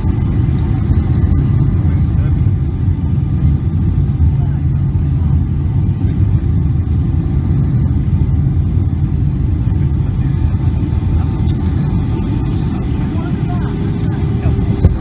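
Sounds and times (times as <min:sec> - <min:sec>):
jet airliner cabin noise: 0:00.0 - 0:15.0.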